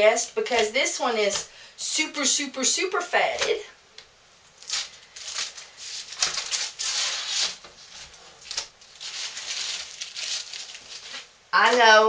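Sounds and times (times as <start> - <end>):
wrapper crinkling and rustling: 4.6 - 12.0.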